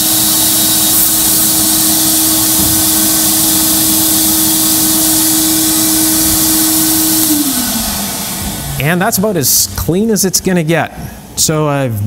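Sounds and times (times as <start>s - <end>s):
blast gun hissing: 0.0s - 9.2s
steady hum: 0.0s - 12.0s.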